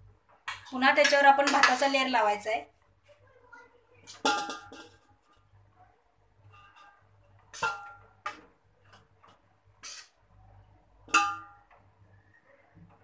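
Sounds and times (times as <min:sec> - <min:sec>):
metal spoon clinking on pot: 0:04.2 - 0:05.1, 0:11.1 - 0:11.7.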